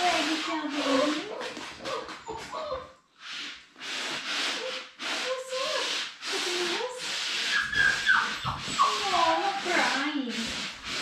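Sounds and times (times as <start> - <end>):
paper towels rubbing on floor: 0.0 - 11.0
puppies whining: 0.4 - 3.0, 7.4 - 10.1.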